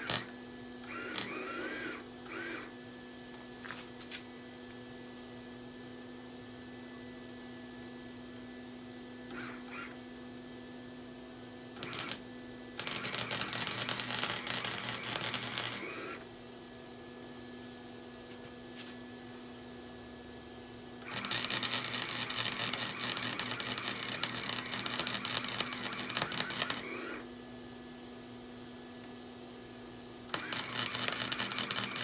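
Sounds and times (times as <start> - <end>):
welder crackling and sizzling: 0.0 - 1.6, 11.8 - 16.2, 21.0 - 27.2, 30.3 - 32.0.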